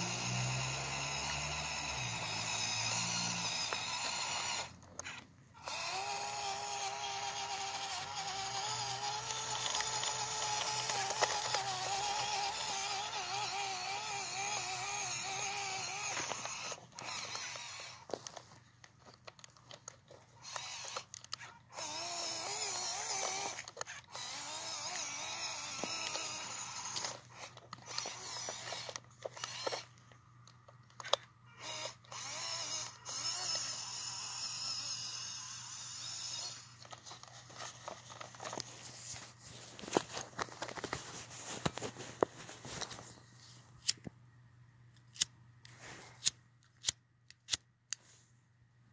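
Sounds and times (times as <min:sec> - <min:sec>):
electric motor whining: 0:00.0 - 0:18.5, 0:20.3 - 0:30.0, 0:31.0 - 0:37.0.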